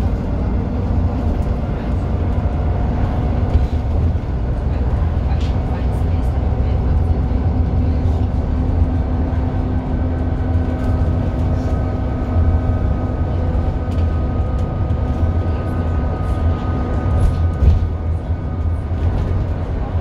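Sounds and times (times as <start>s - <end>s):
bus engine droning: 0.0s - 20.0s
bus bump: 13.6s - 19.9s.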